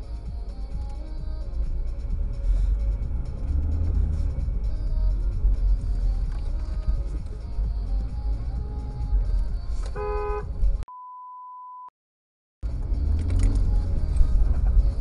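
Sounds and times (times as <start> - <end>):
engine and road rumble in car: 0.0 - 10.8, 12.6 - 15.0
car horn honking: 9.9 - 10.6
electronic censor beep: 10.9 - 11.9.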